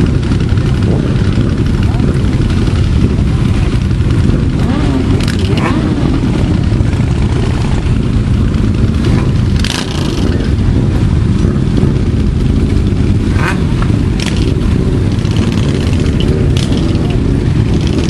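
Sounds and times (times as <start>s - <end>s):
motorcycle engines idling: 0.0s - 18.0s.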